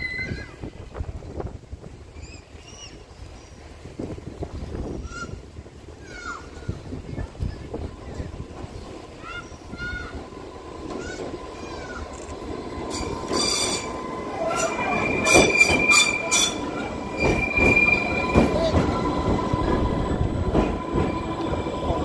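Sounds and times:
electric train passing slowly: 5.5s - 22.0s
train wheels squealing: 11.0s - 22.0s.

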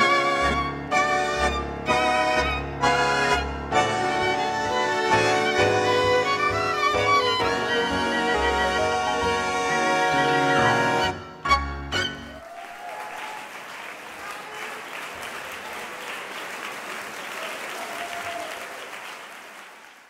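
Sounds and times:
tango ensemble chords: 0.0s - 12.4s
audience applauding: 12.2s - 20.0s.

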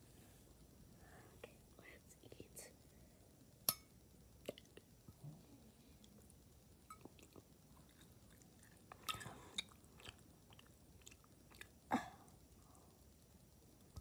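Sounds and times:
chewing and biting food: 7.1s - 11.8s.

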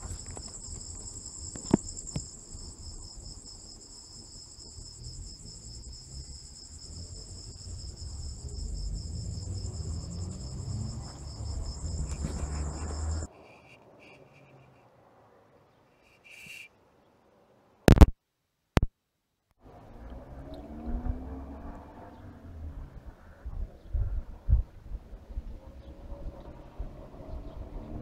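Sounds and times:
crickets trilling: 0.0s - 14.7s
low rumble: 4.8s - 13.3s
sharp click: 17.9s - 18.1s.

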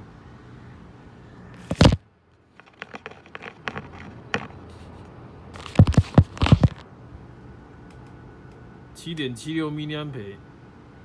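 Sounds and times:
phone handling bumps and taps: 2.6s - 4.6s, 5.6s - 6.8s.

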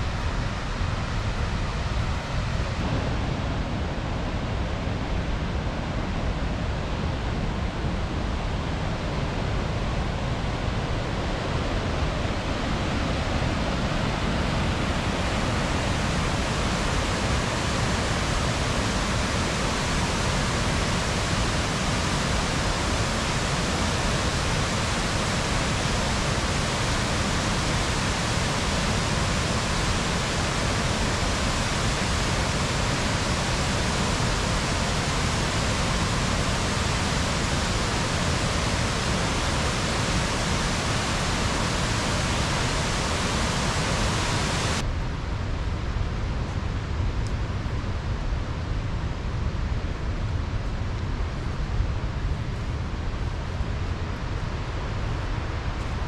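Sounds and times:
waterfall rushing: 13.3s - 44.8s.

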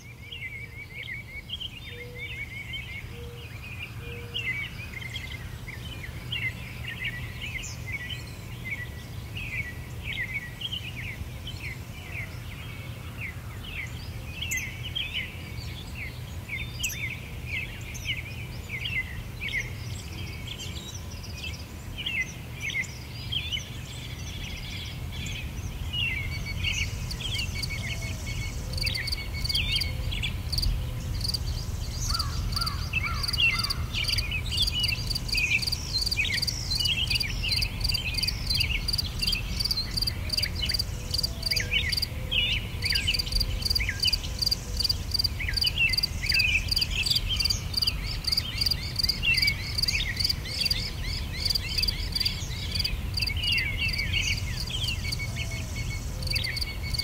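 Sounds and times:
small birds chirping: 0.0s - 57.0s
high pulsing insect trill: 30.5s - 41.3s.

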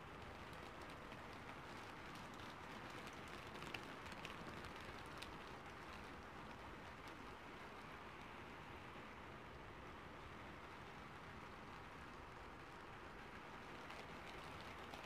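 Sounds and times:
raindrop ticks: 0.0s - 8.3s, 11.4s - 15.0s
light rain hiss: 0.0s - 15.0s.

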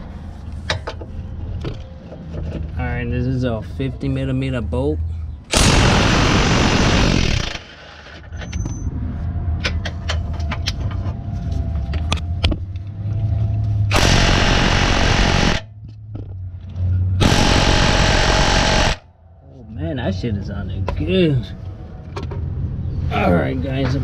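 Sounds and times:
impact wrench hammering: 17.2s - 19.0s.

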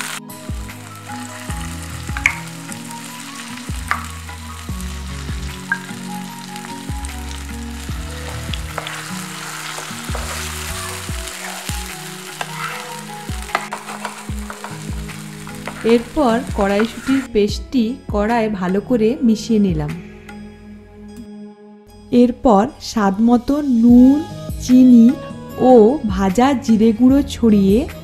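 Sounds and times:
paste sizzling in hot oil: 0.0s - 17.3s
wooden spatula scraping a pan: 8.1s - 17.3s.

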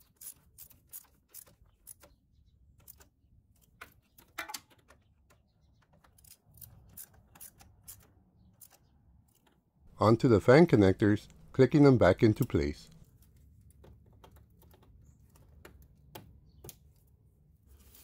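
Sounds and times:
ratchet clicks and metallic rattles: 0.0s - 2.2s, 6.0s - 9.6s.

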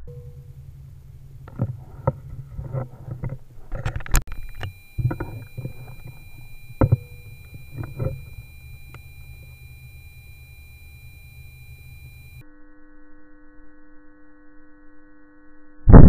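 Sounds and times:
faint high tones: 0.0s - 12.5s
rifle being handled: 0.9s - 8.4s
sharp click: 1.4s - 10.4s.

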